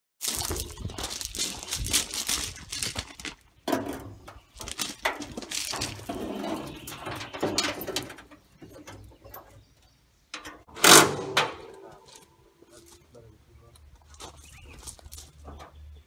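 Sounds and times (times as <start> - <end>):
metal hood scraping and rustling: 0.4 - 9.8, 10.4 - 12.1
metal hood clicks and clunks: 3.6 - 9.7, 10.4 - 11.9.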